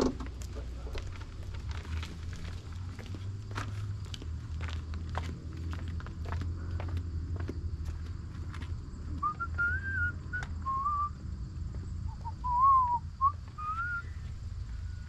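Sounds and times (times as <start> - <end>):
person whistling a tune: 9.2 - 11.2, 12.1 - 14.3.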